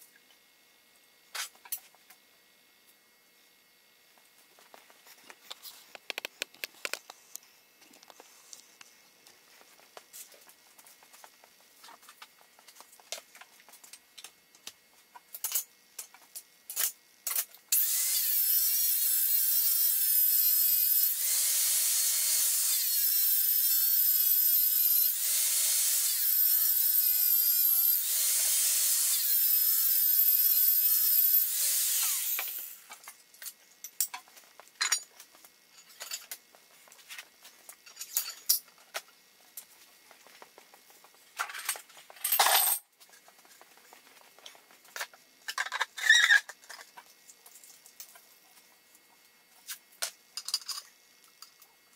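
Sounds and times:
angle grinder cutting metal: 17.8 - 32.9
metal parts knocking and clicking: 50.4 - 50.9.

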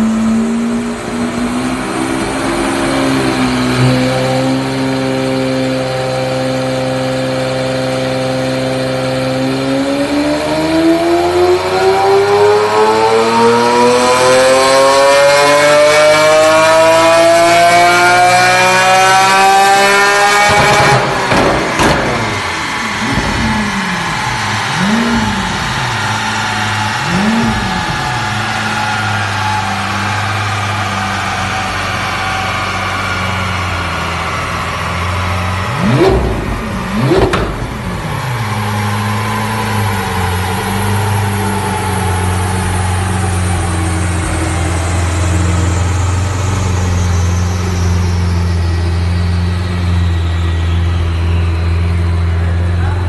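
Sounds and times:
car engine revving: 0.0 - 53.0.

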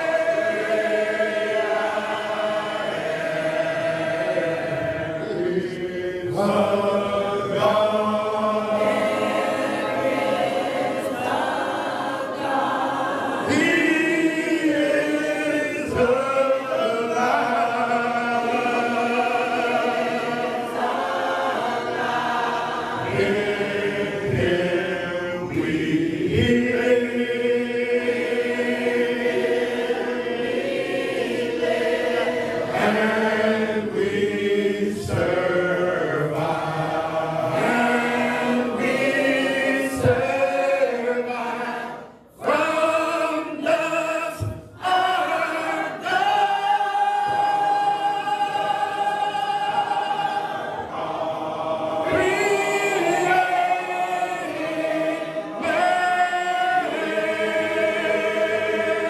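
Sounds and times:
congregation singing a hymn: 0.0 - 59.0
man singing into a microphone: 42.4 - 49.7.

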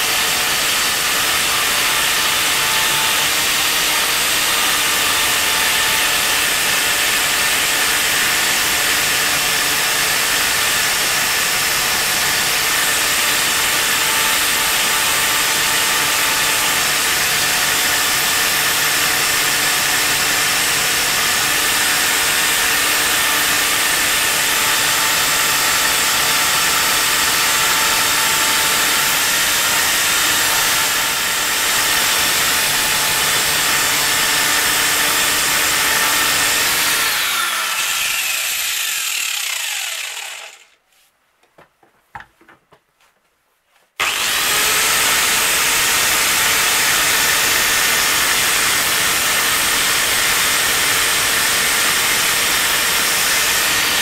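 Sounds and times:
angle grinder grinding steel: 19.4 - 40.8, 44.0 - 54.0
small knocks: 41.4 - 43.3.

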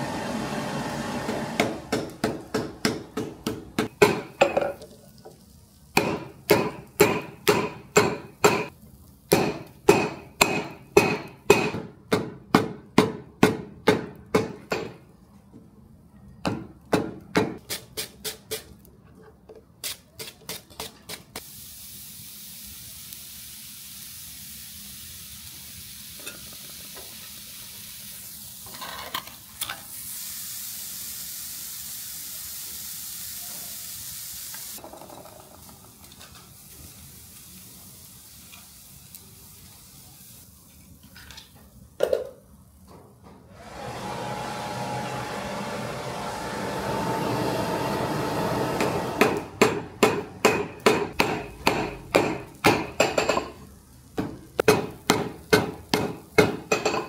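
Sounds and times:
steady hiss: 21.2 - 28.8, 29.4 - 34.8, 35.4 - 41.2.

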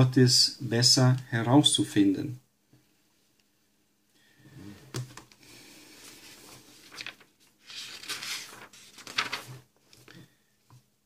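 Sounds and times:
paper pages rustling: 6.0 - 10.4.

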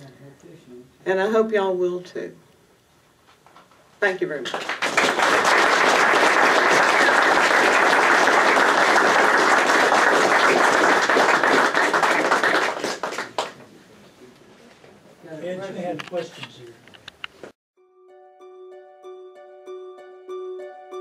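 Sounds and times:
audience applauding: 4.4 - 13.6.

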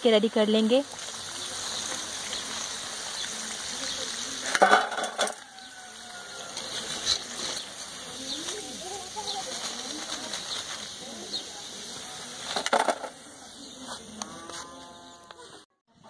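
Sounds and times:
food sizzling in hot oil: 0.0 - 13.9
skimmer clattering against metal: 4.5 - 5.4.

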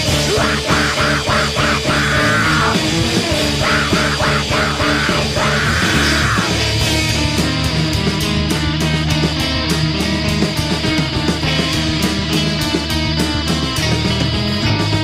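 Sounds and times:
screamed vocals: 0.0 - 6.7
drum and cymbal hits: 0.0 - 15.0
noise rock band playing: 0.0 - 15.0.

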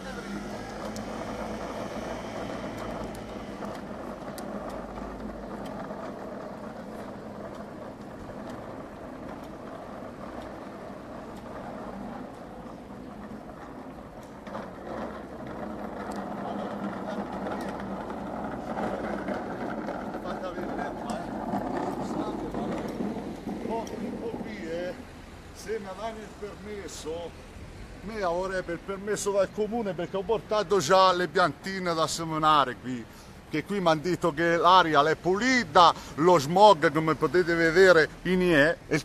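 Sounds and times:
machine wheels rattling on asphalt: 0.0 - 39.0.

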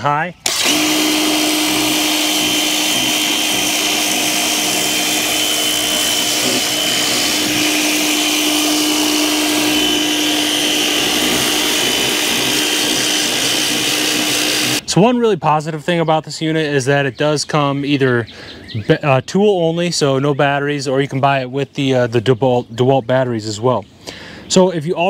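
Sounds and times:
power cleaner motor humming: 0.5 - 14.8.

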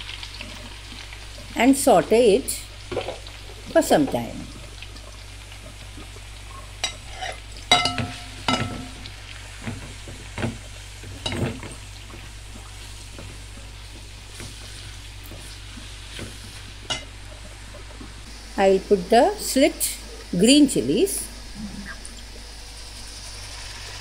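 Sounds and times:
onions sizzling in oil: 0.0 - 24.0.

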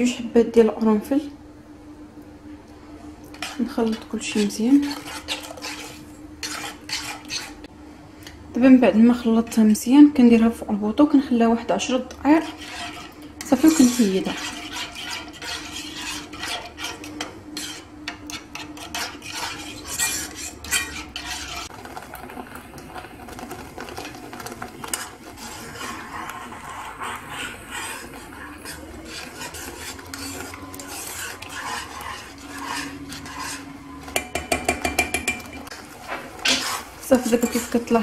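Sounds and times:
metal spoon stirring sauce: 3.3 - 7.6, 12.3 - 38.0
spoon clinking against saucepan: 32.7 - 35.7.

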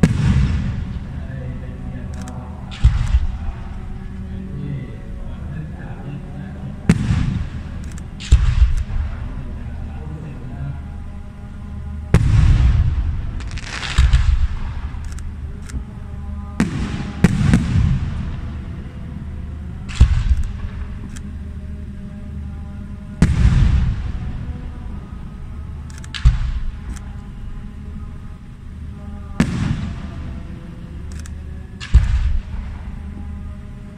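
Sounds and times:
firework shells booming: 0.0 - 1.2, 2.7 - 3.8, 6.9 - 9.3, 12.1 - 15.4, 16.6 - 18.6, 19.9 - 21.1, 29.4 - 30.2, 31.8 - 32.8.

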